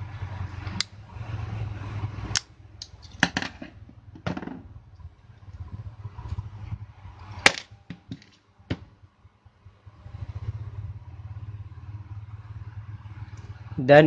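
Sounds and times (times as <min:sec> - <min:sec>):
steady low rumble: 0:01.7 - 0:14.0.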